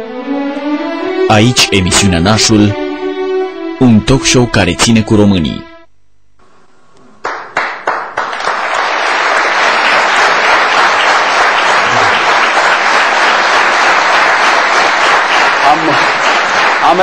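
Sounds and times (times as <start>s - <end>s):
audience applauding: 7.2s - 17.0s.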